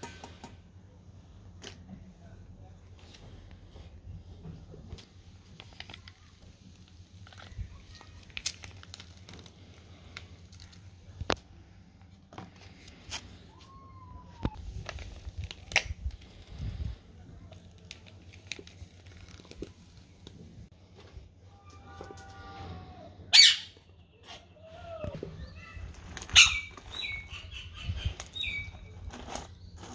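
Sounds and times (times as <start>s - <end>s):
foil pouch crinkling: 5.4s - 11.4s, 14.6s - 16.8s, 17.5s - 20.3s, 25.8s - 27.3s, 28.2s - 29.9s.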